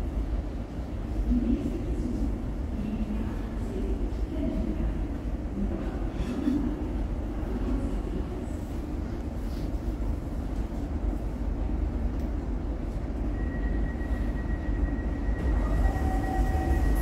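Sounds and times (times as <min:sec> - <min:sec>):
light-rail car rumble and hum: 0:00.0 - 0:17.0.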